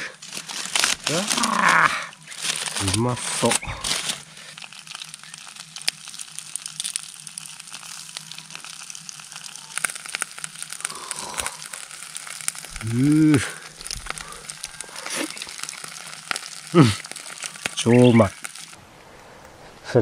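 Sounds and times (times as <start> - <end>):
fish sizzling on a grill: 0.0 - 18.8
person humming: 12.7 - 13.6, 16.7 - 17.0.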